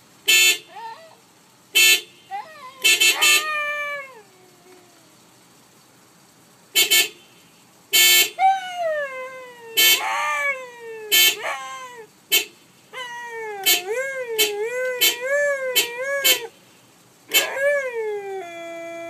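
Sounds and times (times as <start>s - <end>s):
short car horn toots: 0.3s - 0.7s, 1.8s - 2.2s, 2.8s - 3.5s
dog howling: 2.3s - 5.2s, 8.4s - 12.1s, 13.0s - 16.5s, 17.3s - 19.0s.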